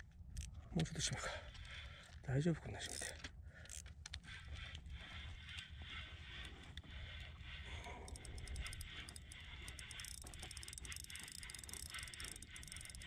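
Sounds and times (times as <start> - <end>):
fishing reel ticking: 0.3 - 13.0.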